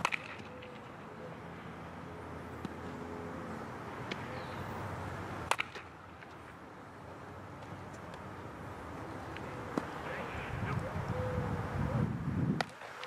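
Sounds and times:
bat striking baseball: 0:00.0 - 0:00.9, 0:05.4 - 0:06.3
outdoor ballfield background: 0:00.0 - 0:13.0.

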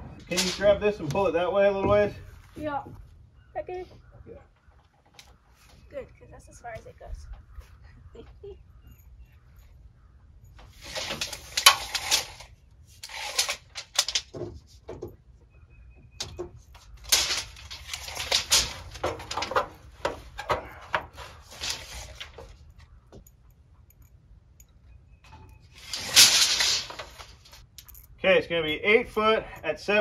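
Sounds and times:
tape measure scraping and rattling: 0:00.2 - 0:01.0, 0:10.6 - 0:14.8, 0:16.7 - 0:22.7, 0:25.3 - 0:27.7.

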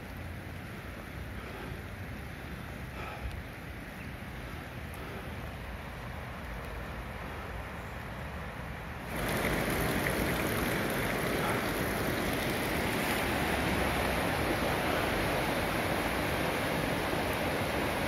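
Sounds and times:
river water rushing: 0:08.9 - 0:18.0.

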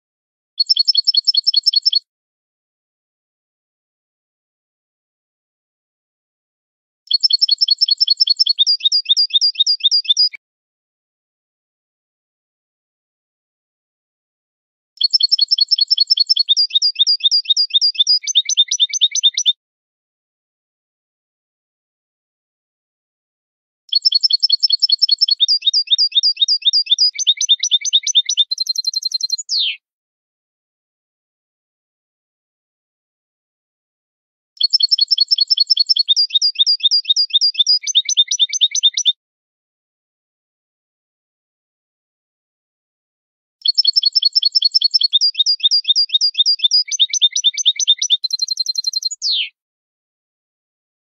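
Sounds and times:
goldfinch singing: 0:00.6 - 0:02.0, 0:07.1 - 0:10.4, 0:15.0 - 0:19.5, 0:23.9 - 0:29.8, 0:34.6 - 0:39.1, 0:43.6 - 0:49.5.

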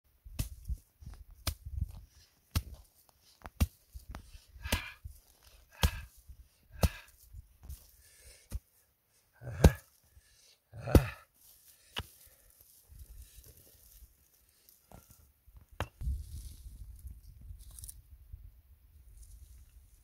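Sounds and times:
mattock chopping stony ground: 0:00.2 - 0:08.8, 0:09.4 - 0:10.1, 0:10.8 - 0:12.4.

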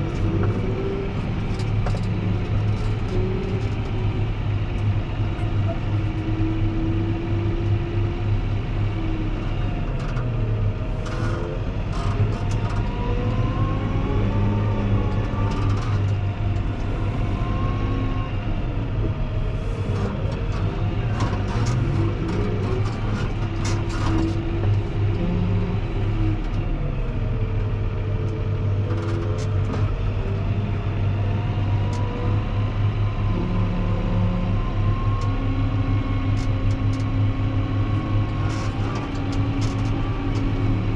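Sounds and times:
tractor diesel engine under load: 0:00.0 - 0:40.9
snow plow clicks and scrapes: 0:19.8 - 0:26.7, 0:37.9 - 0:40.9.

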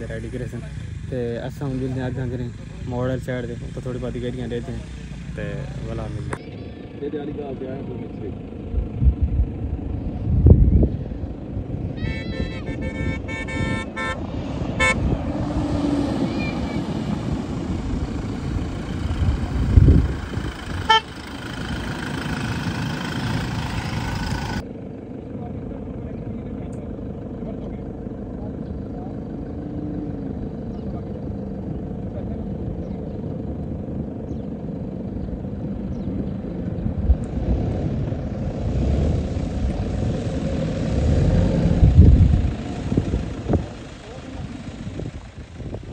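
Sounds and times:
truck engine running hard: 0:00.0 - 0:45.9
vehicle horn toot: 0:12.0 - 0:15.1, 0:20.8 - 0:21.2.

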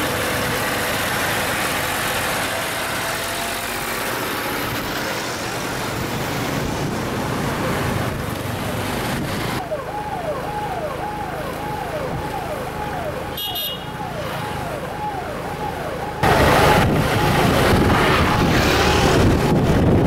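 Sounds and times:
road and engine noise: 0:00.0 - 0:20.0
electronic siren falling tone: 0:09.6 - 0:19.8.

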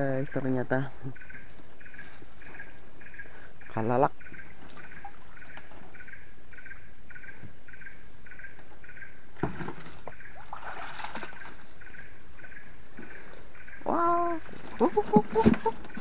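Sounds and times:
constant high whine: 0:00.0 - 0:10.5, 0:11.1 - 0:16.0
water splashing and dripping: 0:09.6 - 0:11.7.

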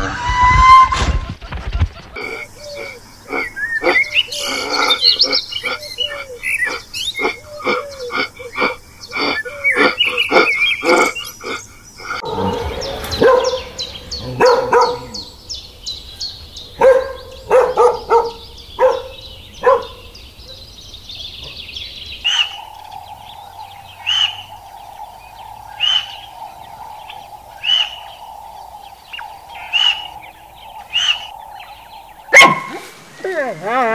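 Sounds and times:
dog barking: 0:13.1 - 0:15.3, 0:16.8 - 0:20.1, 0:32.3 - 0:32.8.

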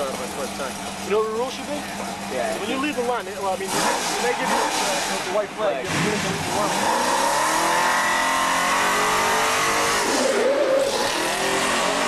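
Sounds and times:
racing engine at high revs: 0:02.8 - 0:12.0.

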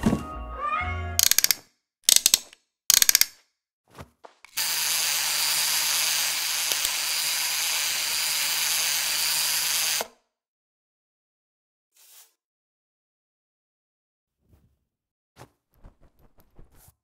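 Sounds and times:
wind-up toy motor whirring: 0:01.2 - 0:03.4, 0:04.5 - 0:10.1.

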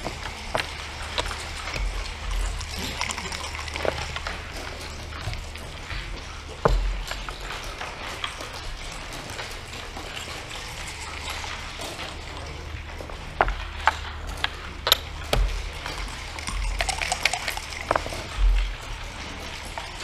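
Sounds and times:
low steady hum: 0:00.0 - 0:20.0
checkers clicking on wooden board: 0:14.8 - 0:18.2
dice rattling in a cup: 0:16.2 - 0:18.3.

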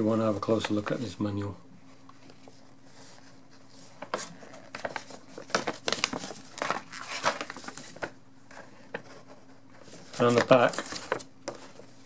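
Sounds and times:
paper rustling and crinkling: 0:00.0 - 0:01.2, 0:02.1 - 0:12.0.

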